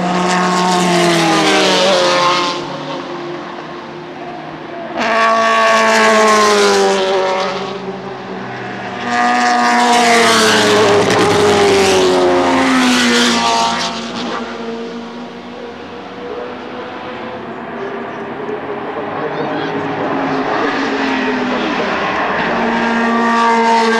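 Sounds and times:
racecars passing at speed: 0:00.0 - 0:23.9.

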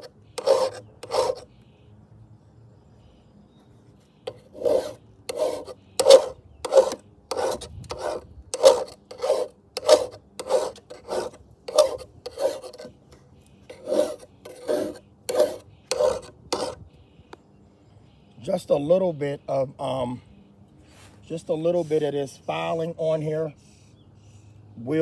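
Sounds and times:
file rasping on metal blade: 0:00.0 - 0:01.5, 0:04.3 - 0:13.0, 0:13.7 - 0:16.8.

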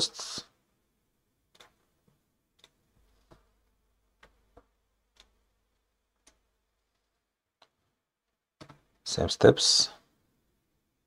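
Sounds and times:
mouse and keyboard clicks: 0:01.5 - 0:01.9, 0:02.6 - 0:03.5.

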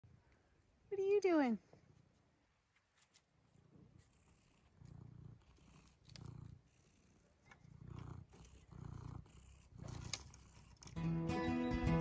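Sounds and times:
cat purring: 0:01.6 - 0:11.2.

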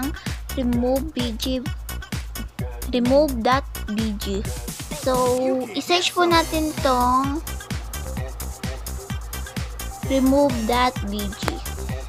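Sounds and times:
electronic dance music: 0:04.2 - 0:12.0.

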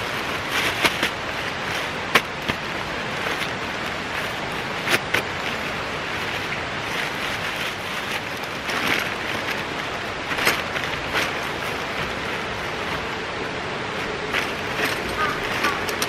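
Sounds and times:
nylon sacks rustling: 0:00.0 - 0:16.0
steady rushing noise: 0:00.0 - 0:16.0.

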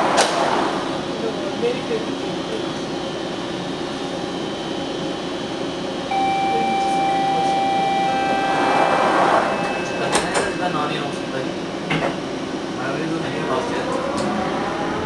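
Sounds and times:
ventilation humming: 0:00.0 - 0:15.0
electronic door-warning tone: 0:06.1 - 0:11.3
sliding doors closing: 0:08.2 - 0:11.2.

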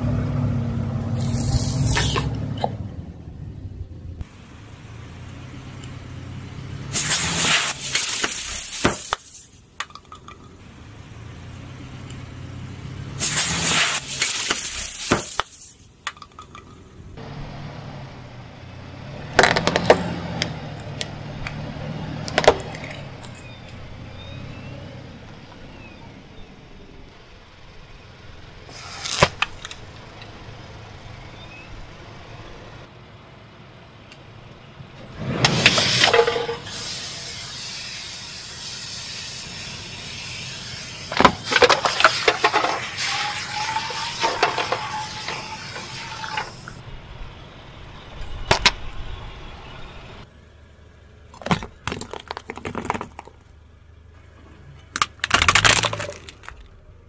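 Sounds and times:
car engine running low: 0:00.0 - 0:07.0, 0:10.1 - 0:13.2, 0:16.5 - 0:37.4, 0:38.2 - 0:57.0
hissing sprays from bursting containers: 0:01.1 - 0:02.3, 0:06.8 - 0:09.7, 0:13.1 - 0:16.0, 0:28.7 - 0:29.5, 0:35.4 - 0:46.8
tyre crushing small objects: 0:41.1 - 0:46.8, 0:51.3 - 0:53.6, 0:54.8 - 0:56.8
plastic cracking and snapping: 0:55.0 - 0:56.7.

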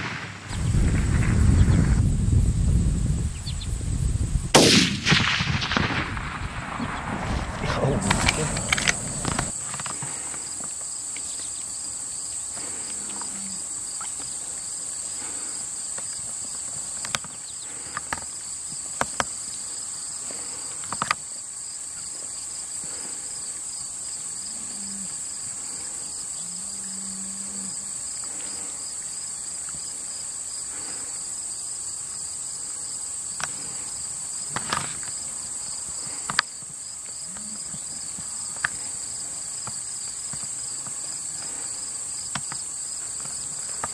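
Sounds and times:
high insect trill: 0:00.0 - 0:43.9
lower pulsing insect trill: 0:00.0 - 0:43.9.

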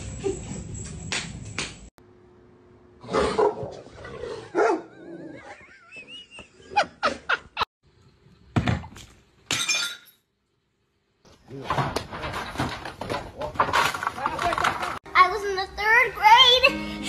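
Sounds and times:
dog barking and growling: 0:03.0 - 0:05.4.

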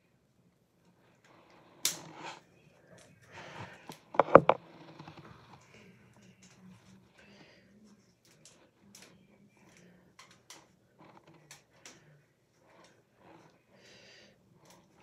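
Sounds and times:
sharp clicks and knocks: 0:03.9 - 0:04.6
phone handling rustling: 0:04.1 - 0:04.6.

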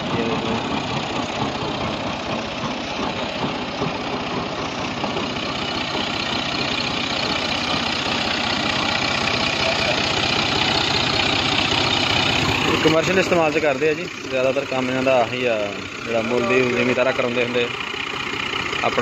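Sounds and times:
tractor diesel engine running: 0:00.0 - 0:19.0.

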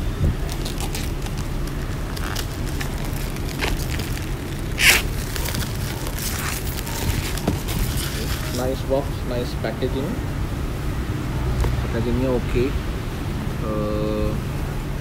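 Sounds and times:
low background rumble: 0:00.0 - 0:15.0
plastic wrapped box crinkling: 0:00.4 - 0:08.8.

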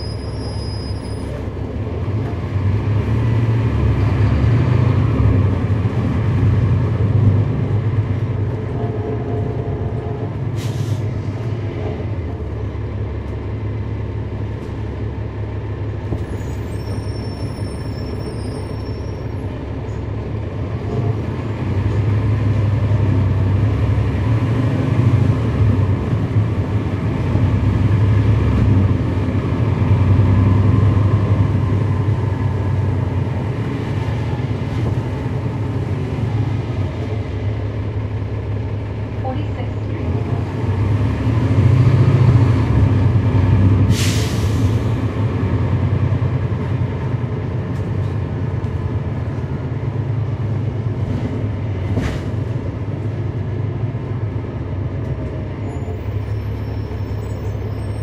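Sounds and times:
bus diesel engine: 0:00.0 - 0:58.0
brief air hiss: 0:10.6 - 0:11.0, 0:43.9 - 0:44.8.

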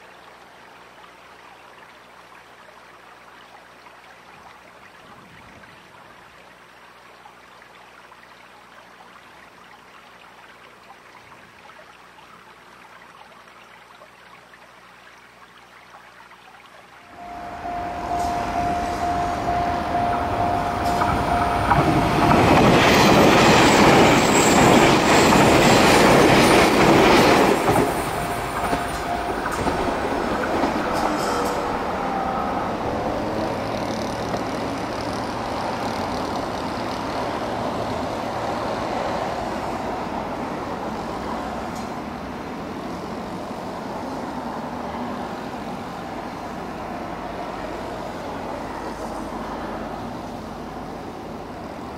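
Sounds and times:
electric train passing on rails: 0:17.0 - 0:51.9.

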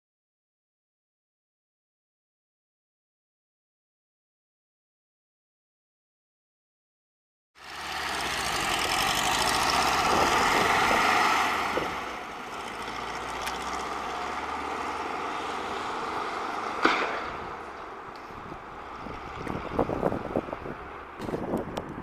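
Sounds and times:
car engine driving away: 0:07.6 - 0:22.0
sharp knock: 0:16.8 - 0:17.4.

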